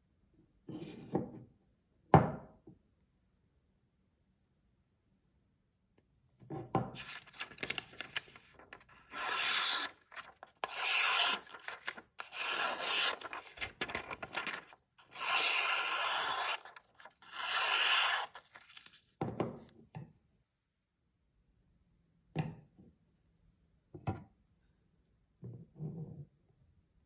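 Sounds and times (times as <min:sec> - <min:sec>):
knife slicing paper: 0:07.0 - 0:19.0
paper rustling: 0:07.0 - 0:19.2.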